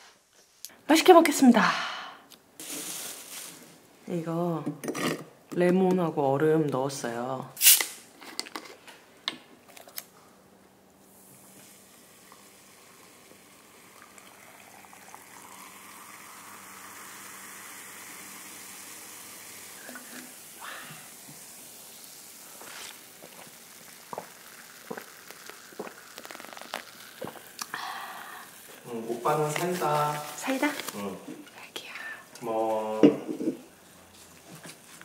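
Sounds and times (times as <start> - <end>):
cola fizzing over ice: 11.0 - 31.1
cola pouring into glass: 11.0 - 31.1.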